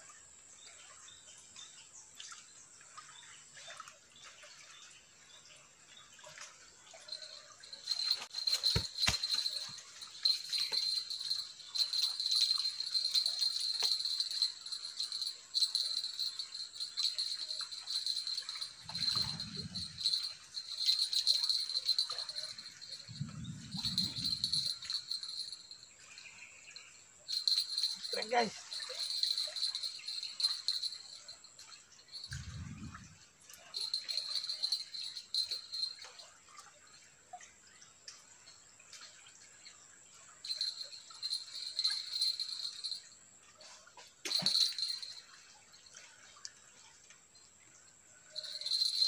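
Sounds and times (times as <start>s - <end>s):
bite-alarm bells jingling: 7.0s - 36.3s, 40.4s - 43.2s, 44.2s - 45.4s, 48.3s - 49.0s.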